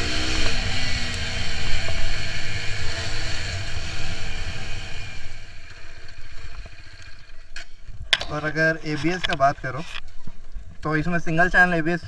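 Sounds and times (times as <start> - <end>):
motorcycle engine running: 0.0 - 7.5.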